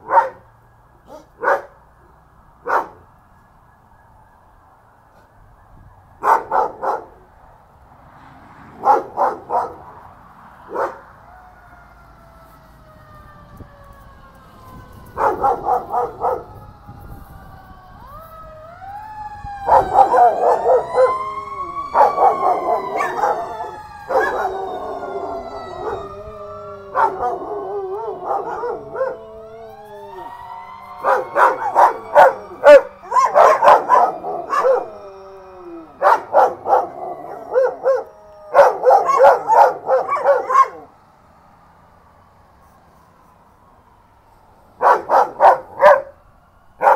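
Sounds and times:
dogs barking: 0.0 - 0.5, 1.1 - 1.8, 2.6 - 3.1, 6.2 - 7.3, 8.7 - 10.1, 10.7 - 11.1, 15.1 - 16.6, 19.6 - 26.2, 26.8 - 29.4, 31.0 - 35.0, 35.9 - 40.9, 44.8 - 46.2
wailing siren: 0.0 - 46.9
dogs howling: 8.8 - 10.0, 10.7 - 11.0, 15.0 - 16.8, 18.0 - 40.9, 44.8 - 46.2.

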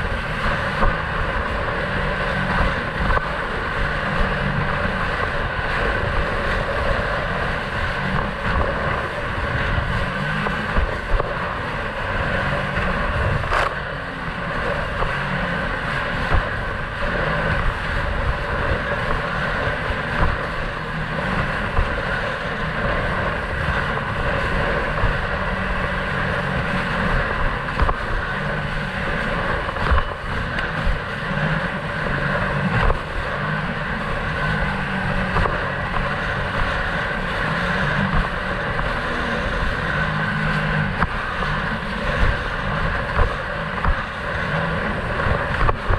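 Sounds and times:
jet ski engine running: 0.0 - 45.9
wind on microphone: 0.0 - 45.9.

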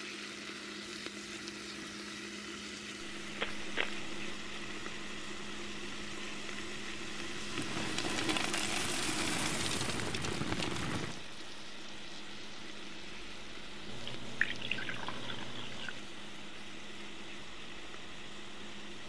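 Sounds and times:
crackling hiss: 0.0 - 14.2
onions sizzling in a pot: 0.0 - 14.4.

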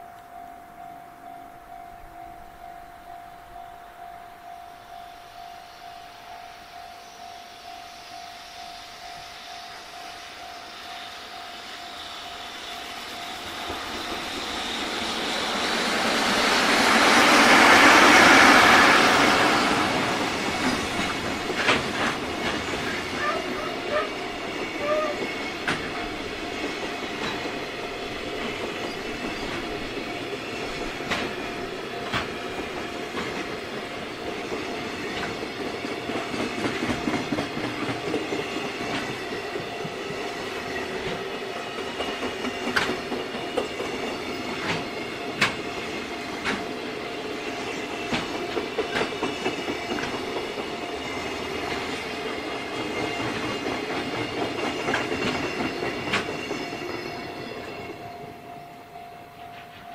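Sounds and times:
train wheels rumbling on rails: 4.8 - 59.9
wheels clicking over rail joints: 13.4 - 46.9, 47.5 - 58.2.

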